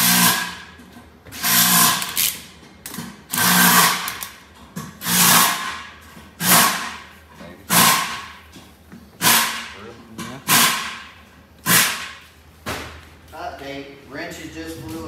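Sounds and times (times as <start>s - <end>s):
power tool on sheet metal: 0.0s - 0.7s, 1.3s - 2.4s, 3.3s - 4.2s, 5.0s - 7.0s, 7.7s - 8.3s, 10.5s - 11.1s.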